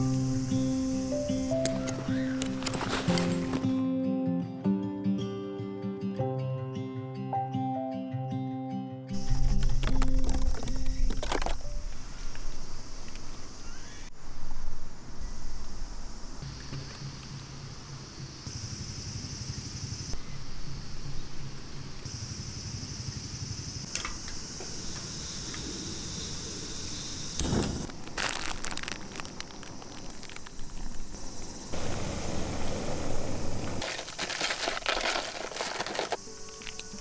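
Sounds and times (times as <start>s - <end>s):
crinkling and clattering handling: 1.7s - 3.8s, 9.2s - 11.8s, 27.9s - 31.0s, 33.8s - 37.0s.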